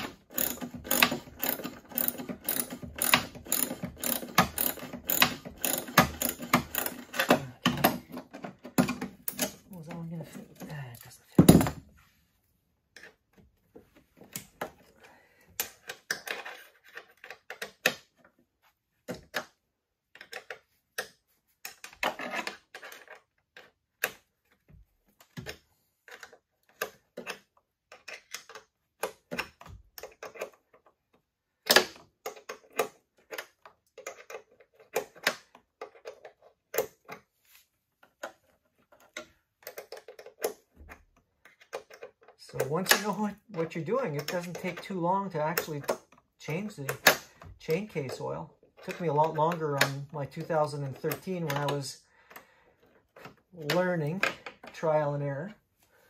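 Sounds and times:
wrench clicking on metal bolts: 0.0 - 7.9.

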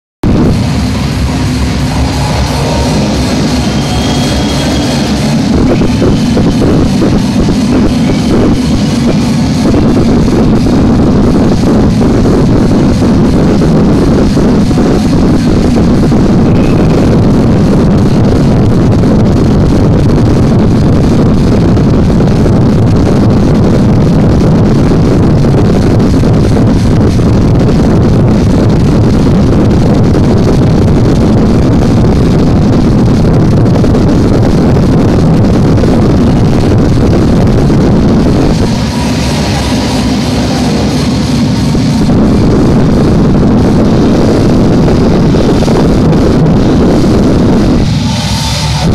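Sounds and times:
loud distorted dance music: 0.3 - 18.6, 30.3 - 48.9.

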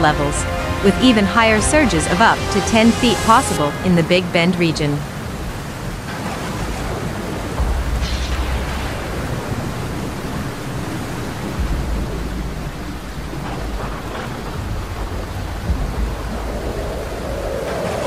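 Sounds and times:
heavy rain: 0.0 - 18.0
storm wind: 0.0 - 18.0
wind buffeting microphone: 5.0 - 18.0.

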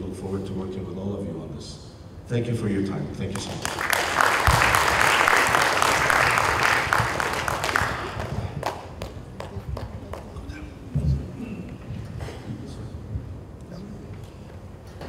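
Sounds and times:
audience applauding: 3.4 - 10.3.

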